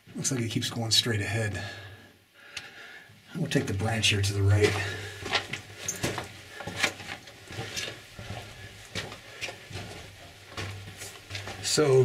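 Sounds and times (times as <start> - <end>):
footsteps on dirt and rock: 3.4 - 12.0.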